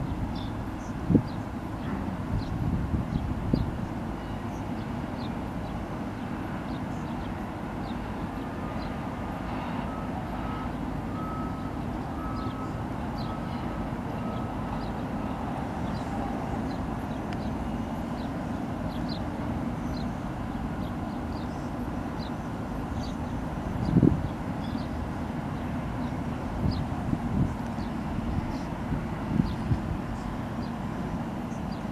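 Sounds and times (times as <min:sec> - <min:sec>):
low ship engine rumble: 0:00.0 - 0:31.9.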